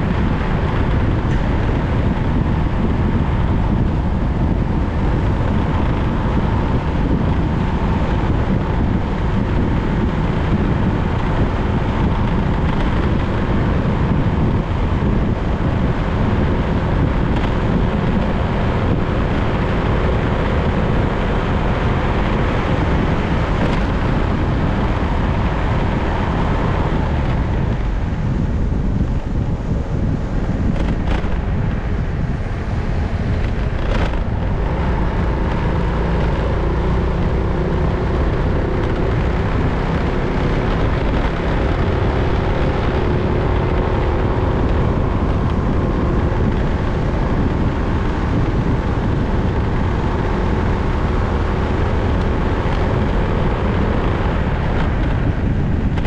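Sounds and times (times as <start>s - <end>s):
motorbike engine: 0.0s - 56.0s
wind rushing over microphone: 0.0s - 56.0s.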